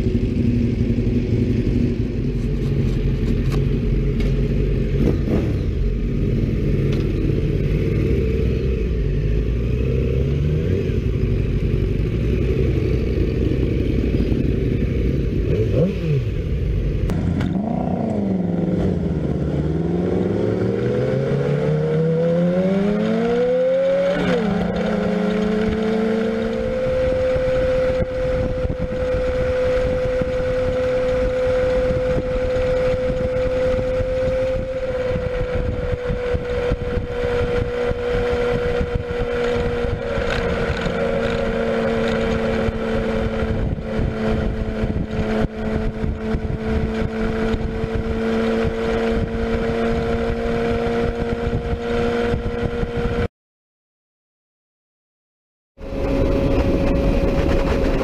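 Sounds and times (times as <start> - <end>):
motorcycle engine accelerating: 0.0 - 53.3, 55.8 - 58.0
wind rushing over microphone: 10.2 - 53.3, 55.8 - 58.0.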